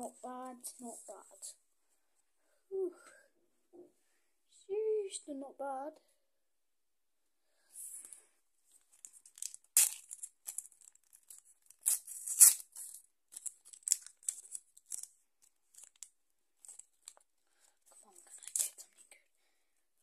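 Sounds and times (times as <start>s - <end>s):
wrapper crinkling and tearing: 8.9s - 17.2s, 18.2s - 19.0s.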